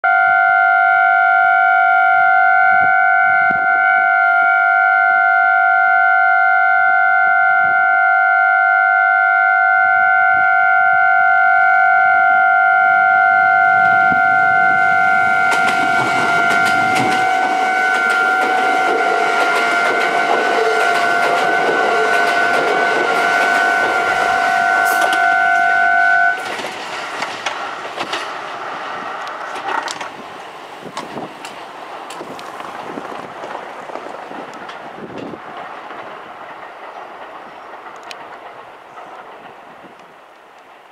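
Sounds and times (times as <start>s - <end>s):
level crossing alarm tone: 0.0s - 26.4s
train wheels clattering: 15.2s - 25.4s, 26.4s - 40.9s.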